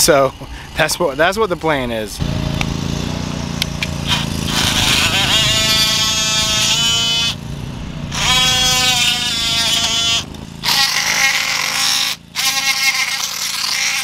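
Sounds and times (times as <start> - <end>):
oscillating multi-tool whining: 3.1 - 7.5, 8.1 - 14.0.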